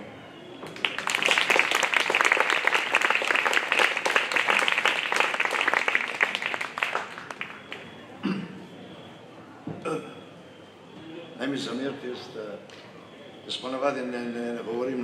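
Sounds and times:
audience applauding: 0.7s - 8.0s.

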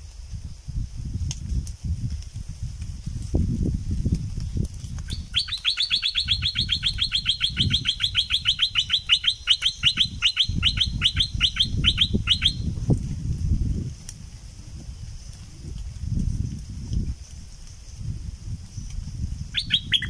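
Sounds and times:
bird calling a fast trill: 5.1s - 12.7s, 19.5s - 20.0s.

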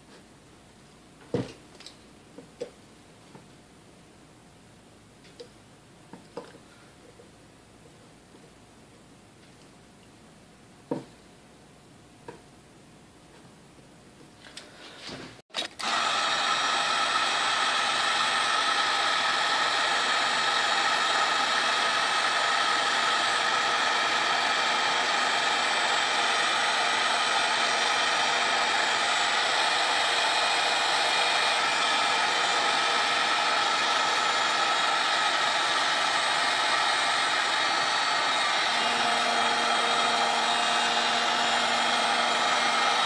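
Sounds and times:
heat gun fan whooshing: 15.6s - 43.0s
motor whine: 15.8s - 43.0s.

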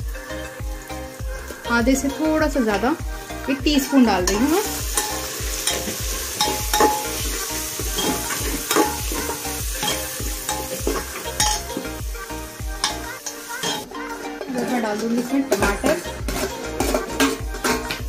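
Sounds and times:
masala sizzling in a pot: 0.0s - 18.0s
ladle clinking and scraping pot: 4.3s - 12.0s, 12.8s - 18.0s.

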